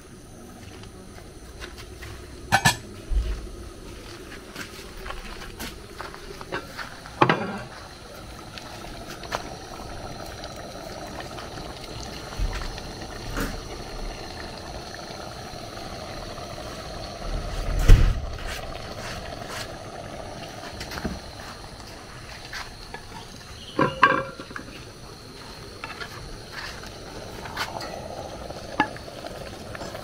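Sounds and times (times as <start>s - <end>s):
soup cooking hiss: 0.0s - 30.0s
thump: 17.8s - 18.2s.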